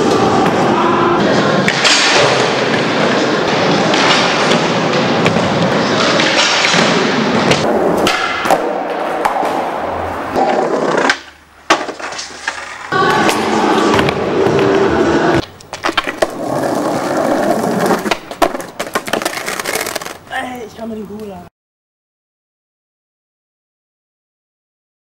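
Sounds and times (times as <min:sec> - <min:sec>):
skateboard wheels rolling on concrete: 0:01.2 - 0:21.5
skateboard clacking on ground: 0:10.3 - 0:13.0, 0:15.4 - 0:21.3.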